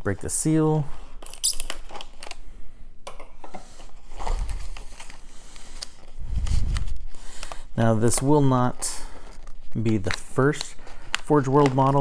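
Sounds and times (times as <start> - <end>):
plastic packaging crinkling: 4.0 - 12.0.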